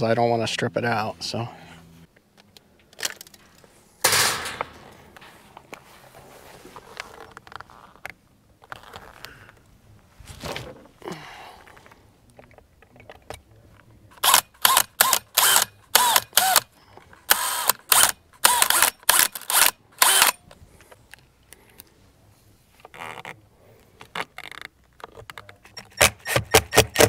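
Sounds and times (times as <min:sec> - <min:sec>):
cordless drill motor whining: 0:14.2 - 0:16.6, 0:17.3 - 0:20.4.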